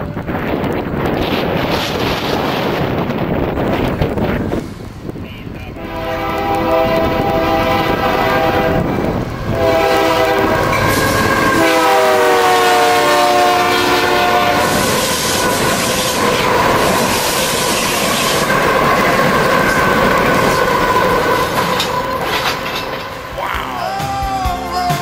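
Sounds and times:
wheels clattering on rails: 0.0 - 11.8, 13.6 - 25.0
locomotive rumble: 0.0 - 25.0
locomotive air horn: 5.8 - 18.4.

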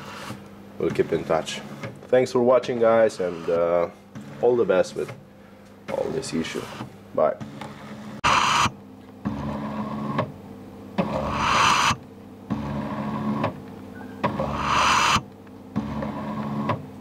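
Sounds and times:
stepper motor whining strokes: 8.2 - 8.8, 11.1 - 12.0, 14.3 - 15.2.

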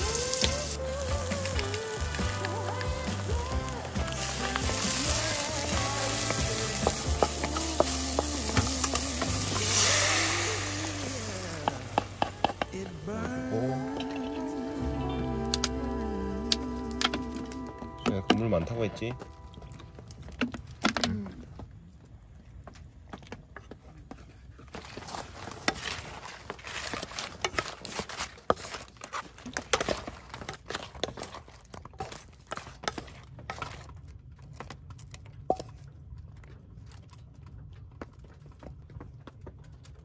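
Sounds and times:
low steady rumble: 5.9 - 20.3
small clicks and crackles: 22.4 - 40.0.

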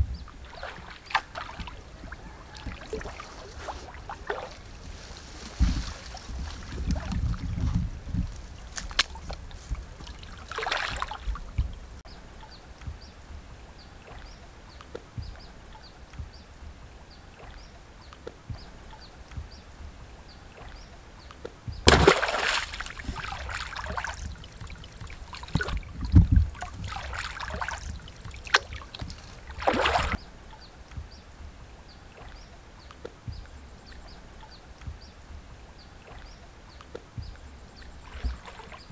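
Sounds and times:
water sloshing from wading: 0.0 - 30.2, 31.0 - 38.9
loud water splash: 0.4 - 4.9, 10.0 - 11.4, 21.9 - 30.2.

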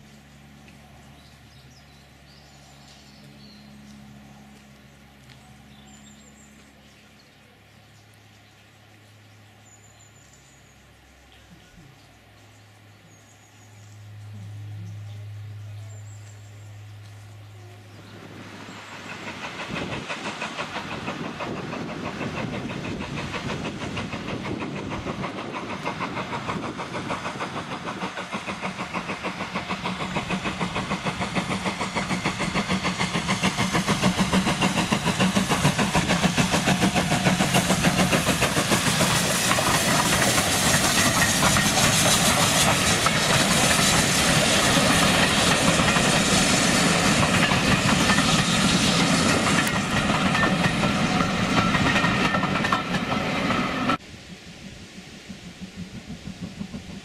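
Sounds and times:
steam locomotive chuffing: 14.3 - 57.0.

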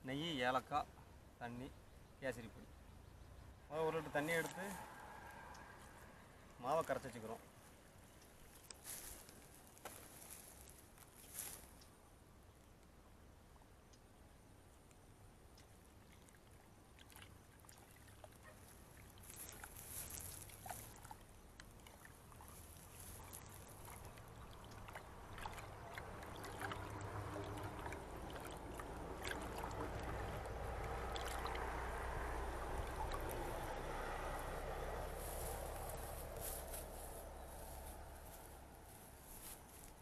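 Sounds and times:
hand squelching batter in bowl: 19.0 - 36.9.

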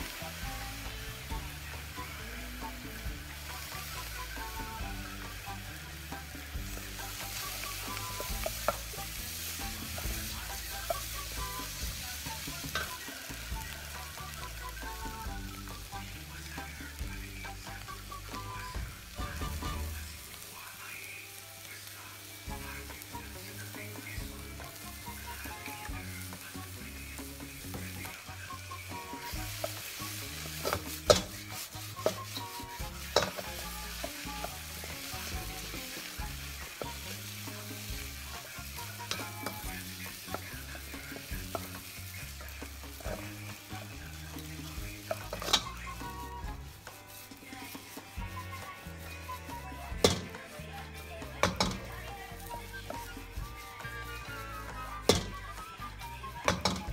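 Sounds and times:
food sizzling in a wok: 0.0 - 56.9
wooden spatula scraping a wok: 0.0 - 56.9
spatula knocking on wok: 29.3 - 43.4, 50.0 - 52.0, 53.8 - 55.5.

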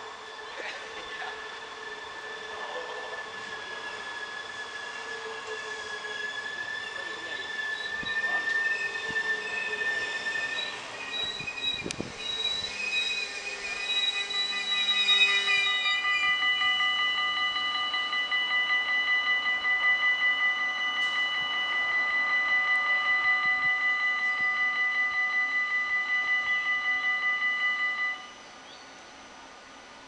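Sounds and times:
train brakes squealing: 0.0 - 30.0
high electronic door beeping: 9.6 - 28.4.

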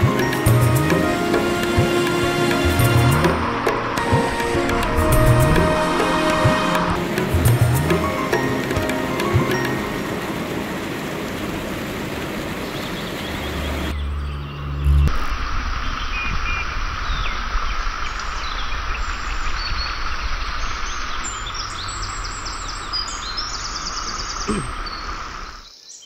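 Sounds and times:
water rushing over rocks: 0.0 - 14.0
birds chirping: 0.0 - 15.1, 15.8 - 26.0
low hum: 2.2 - 25.6.

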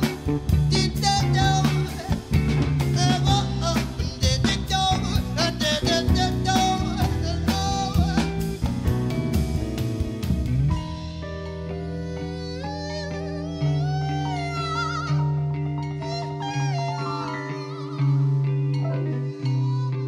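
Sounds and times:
drum kit: 0.0 - 13.1
bass: 0.0 - 20.0
electric guitar: 0.0 - 20.0.

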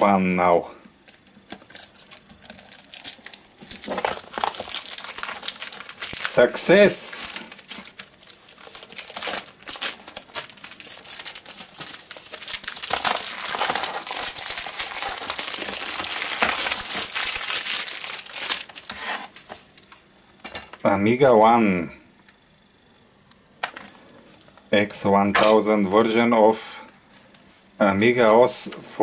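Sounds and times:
cellophane crinkling: 0.0 - 20.0.

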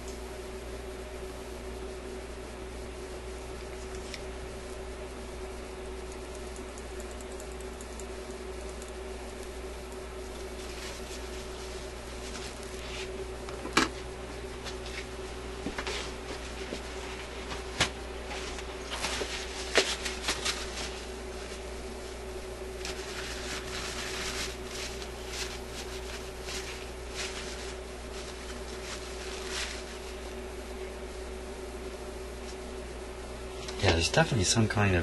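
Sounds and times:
tissue paper rustling: 10.5 - 13.2, 15.9 - 21.7, 22.8 - 30.3.

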